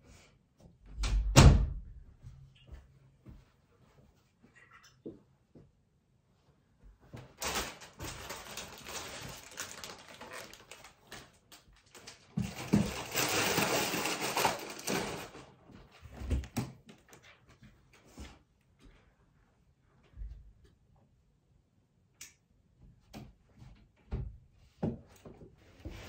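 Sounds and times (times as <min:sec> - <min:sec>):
rustling and scuffling: 0:06.7 - 0:19.2.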